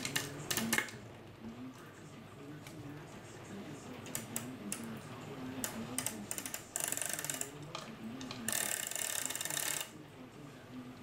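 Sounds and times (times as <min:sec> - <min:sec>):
clock chain ratcheting clicks: 0:05.6 - 0:07.5, 0:08.5 - 0:09.9.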